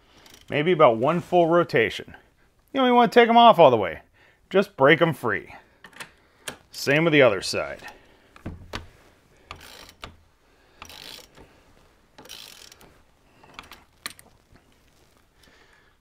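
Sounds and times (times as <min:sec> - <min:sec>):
ratchet clicking faintly: 0:00.2 - 0:00.5, 0:09.4 - 0:10.2, 0:10.8 - 0:11.5, 0:12.2 - 0:14.2.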